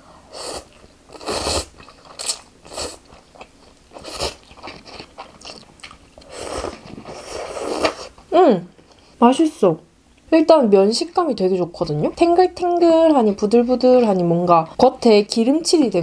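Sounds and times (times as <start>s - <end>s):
person slurping noodles: 0.3s - 3.0s, 4.0s - 4.5s, 6.2s - 8.1s
chewing: 1.8s - 8.1s.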